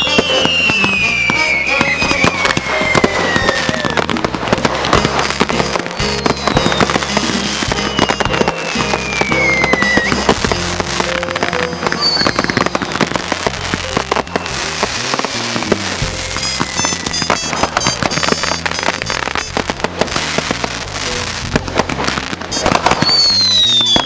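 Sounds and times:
falling firework whistle: 0:00.0 - 0:24.0
fireworks bangs and crackling: 0:00.0 - 0:24.0.

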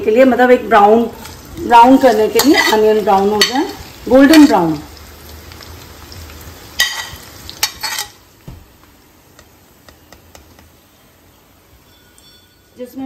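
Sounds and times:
onions sizzling in a pan: 0:00.0 - 0:13.0
spatula scraping a pan: 0:02.2 - 0:03.6, 0:06.8 - 0:08.2.

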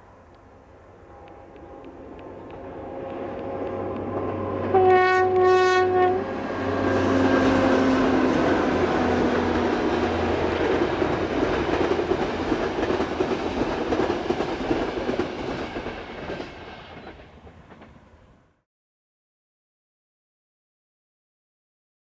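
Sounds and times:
train passing on rails: 0:00.0 - 0:18.6
train horn blast: 0:00.9 - 0:09.8.

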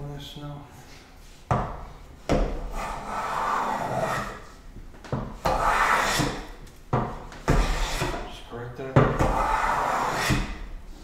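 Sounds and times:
hand plane cutting wood shavings: 0:09.3 - 0:10.4.

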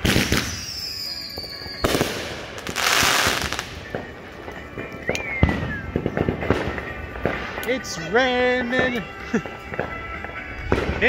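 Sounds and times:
firework bangs: 0:00.0 - 0:11.0
firework whistle falling in pitch: 0:00.1 - 0:07.2.

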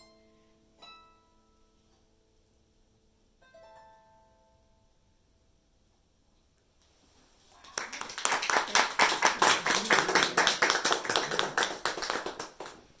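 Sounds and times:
people clapping: 0:07.5 - 0:13.0.

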